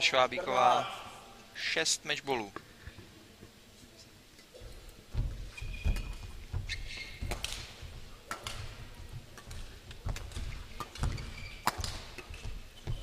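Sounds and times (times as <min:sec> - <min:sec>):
shoes squeaking on court floor: 0:04.6 - 0:13.0
footsteps thudding: 0:05.1 - 0:09.2
racket striking shuttlecock: 0:08.3 - 0:08.8, 0:09.4 - 0:12.4.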